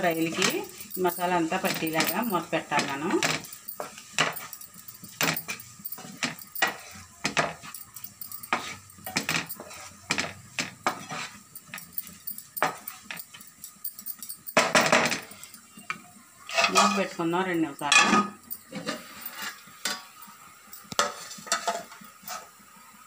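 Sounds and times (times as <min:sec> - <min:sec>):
spatula scraping a frying pan: 0:03.5 - 0:07.7, 0:08.4 - 0:13.4, 0:16.5 - 0:17.1, 0:18.0 - 0:20.1, 0:20.9 - 0:22.6.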